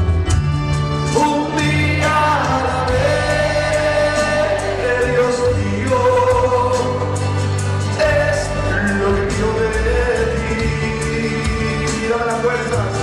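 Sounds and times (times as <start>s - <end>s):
steady drum beat: 0.0s - 13.0s
sustained bass notes: 0.0s - 13.0s
person singing worship song: 1.2s - 7.2s.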